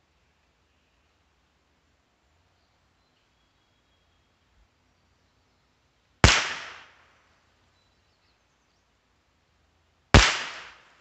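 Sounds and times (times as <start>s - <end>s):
rifle shots with echo: 6.2s - 7.0s, 10.2s - 10.9s.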